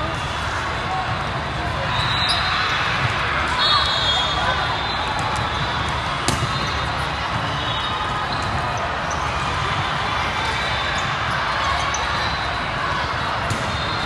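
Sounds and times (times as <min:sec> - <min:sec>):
murmur of distant voices: 0:00.0 - 0:14.0
volleyballs struck and bouncing: 0:05.1 - 0:09.8, 0:13.4 - 0:14.0.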